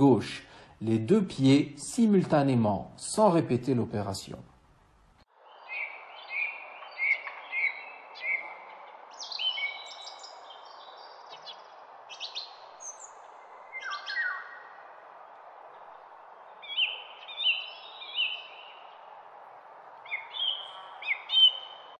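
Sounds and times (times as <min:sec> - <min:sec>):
small birds chirping: 0:05.3 - 0:19.2, 0:20.0 - 0:22.0.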